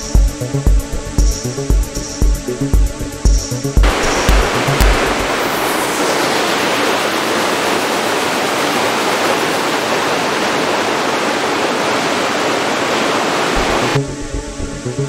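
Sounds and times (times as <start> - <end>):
water splashing over rocks: 3.8 - 14.0.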